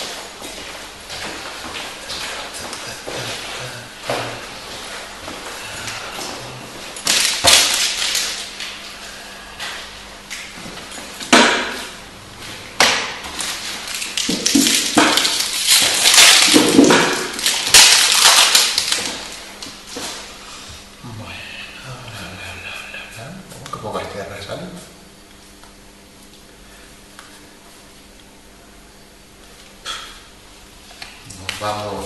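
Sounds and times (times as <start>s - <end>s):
wrappers and cards crinkling: 6.9s - 8.8s, 13.3s - 19.4s.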